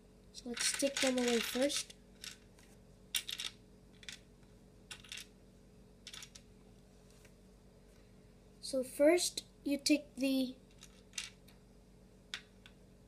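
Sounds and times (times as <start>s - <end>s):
plastic bricks clicking: 0.6s - 2.4s, 3.2s - 4.2s, 4.9s - 5.3s.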